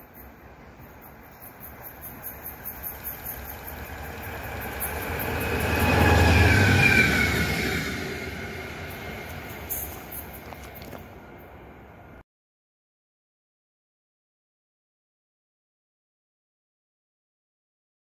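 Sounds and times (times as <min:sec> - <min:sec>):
locomotive rumble passing: 0:00.0 - 0:12.2.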